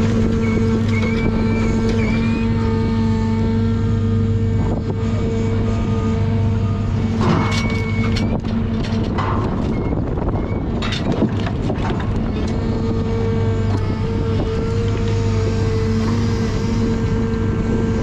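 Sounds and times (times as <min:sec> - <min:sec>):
crane hydraulics whining: 0:00.0 - 0:18.0
diesel engine running: 0:00.0 - 0:18.0.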